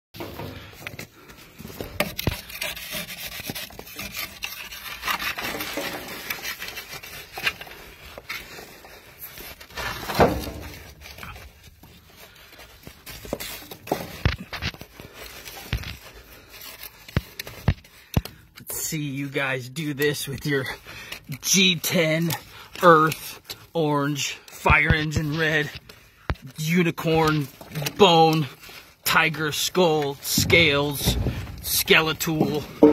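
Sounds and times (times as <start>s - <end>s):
metal blade scraping dirt and gravel: 2.0s - 7.6s, 26.6s - 32.9s.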